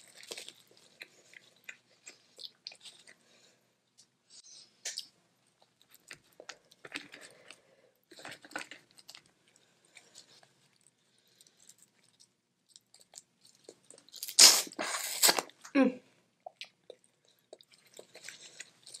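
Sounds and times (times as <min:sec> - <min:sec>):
chewing: 0:00.0 - 0:03.4, 0:04.8 - 0:14.2, 0:16.4 - 0:19.0.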